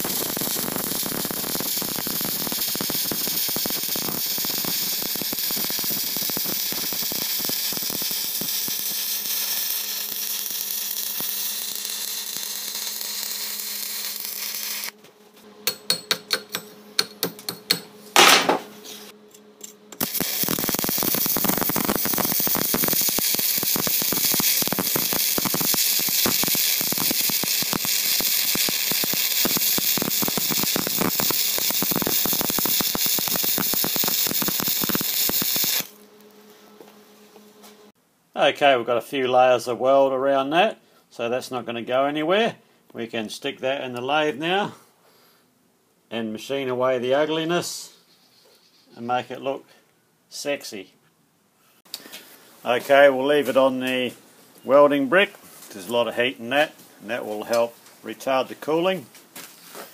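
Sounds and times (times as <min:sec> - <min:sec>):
arc welding crackling: 0:00.0 - 0:15.0, 0:15.7 - 0:36.4.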